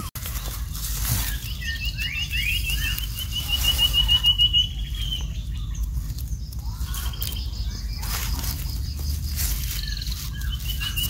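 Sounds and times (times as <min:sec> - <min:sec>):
bird trilling: 0:00.0 - 0:11.0
rising whistled bird notes: 0:01.2 - 0:05.8, 0:09.7 - 0:11.0.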